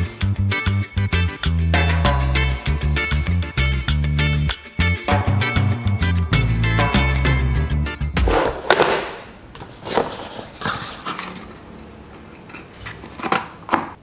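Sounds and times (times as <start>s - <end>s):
background music: 0.0s - 9.4s
plastic parts knocking: 8.4s - 10.1s.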